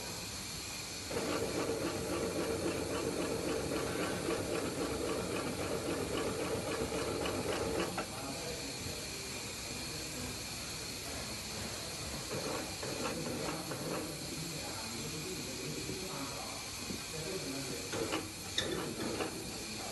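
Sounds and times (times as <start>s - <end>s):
steady hiss: 0.0s - 19.9s
sewing machine stitching: 1.1s - 8.0s.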